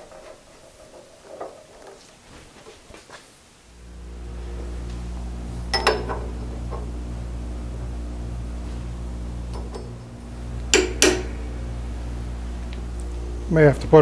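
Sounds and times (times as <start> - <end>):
low electric hum: 3.3 - 14.0.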